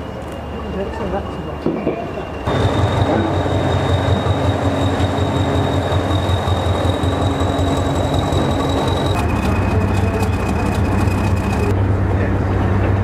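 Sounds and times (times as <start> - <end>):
high-pitched whine: 2.2 - 11.8
diesel engine drone: 2.5 - 13.0.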